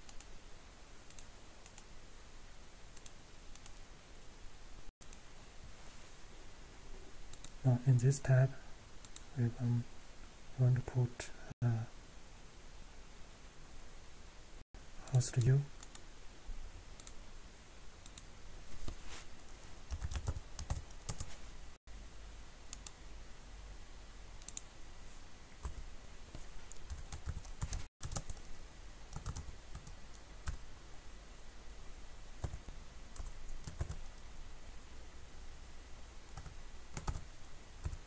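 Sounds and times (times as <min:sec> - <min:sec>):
typing on keyboard: 0:19.9 - 0:21.3, 0:25.6 - 0:28.5, 0:29.1 - 0:30.6, 0:32.4 - 0:32.6, 0:33.2 - 0:34.0, 0:36.4 - 0:37.2.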